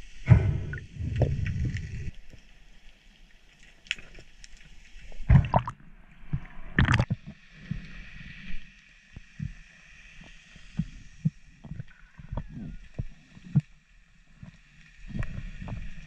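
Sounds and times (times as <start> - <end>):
water gurgling underwater: 0.3 - 2.2, 5.3 - 7.4.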